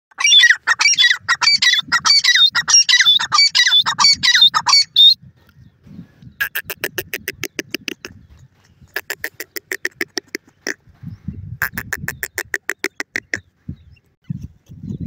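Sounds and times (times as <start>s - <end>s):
francolin calling shrill notes: 0.2s - 5.2s.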